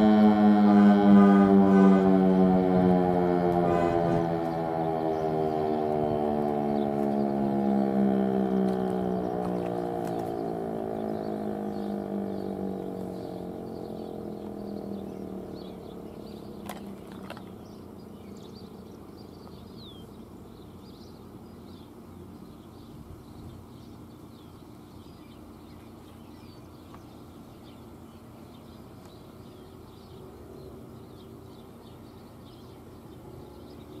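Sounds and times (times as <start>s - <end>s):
warning siren tone sliding down: 0.0s - 16.5s.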